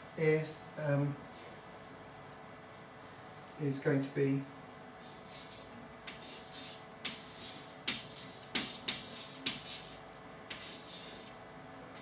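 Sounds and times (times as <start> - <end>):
chalk tapping on board: 5.0 - 11.3
chalk scratching on blackboard: 5.0 - 11.4.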